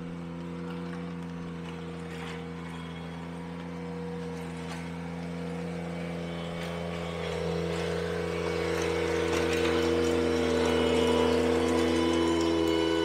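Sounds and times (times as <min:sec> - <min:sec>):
tractor engine running: 0:00.0 - 0:13.0
rake dragging through gravel: 0:01.7 - 0:03.4.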